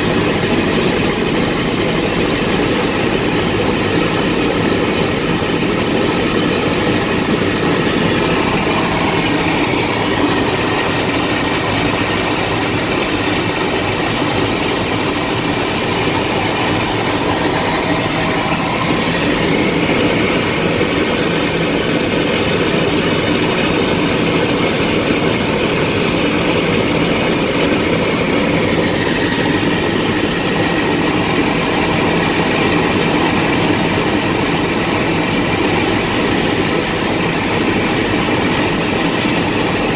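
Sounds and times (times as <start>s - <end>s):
helicopter engine and rotor: 0.0s - 39.9s.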